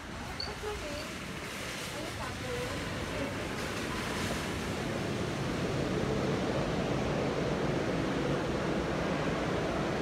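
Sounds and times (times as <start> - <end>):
steady rushing noise: 3.4 - 10.0.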